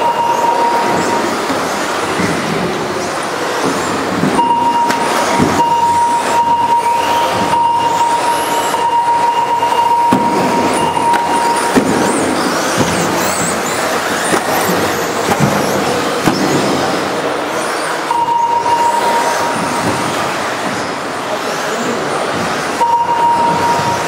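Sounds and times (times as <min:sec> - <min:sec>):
steady high tone: 0:00.0 - 0:01.8, 0:04.4 - 0:13.2, 0:18.0 - 0:20.3, 0:22.8 - 0:24.0
rc car motors whining: 0:00.0 - 0:24.0.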